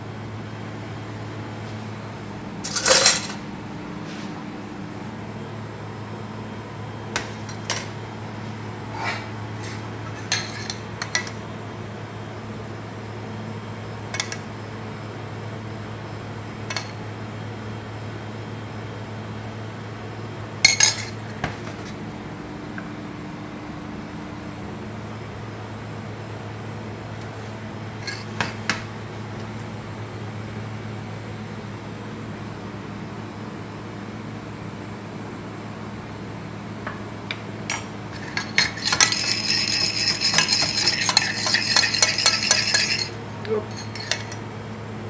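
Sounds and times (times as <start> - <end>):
metal spoon clinking on cookware: 2.7 - 3.4, 38.1 - 44.4.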